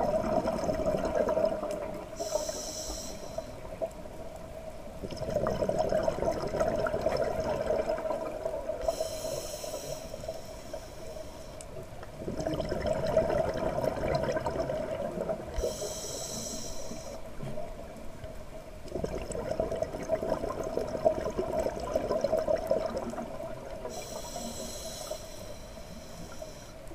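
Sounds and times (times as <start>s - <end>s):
exhaled bubbles rushing: 0.0s - 2.2s, 5.0s - 8.8s, 12.2s - 15.6s, 18.9s - 23.9s
regulator hissing inhale: 2.2s - 3.7s, 8.8s - 11.8s, 15.6s - 17.4s, 23.8s - 26.9s.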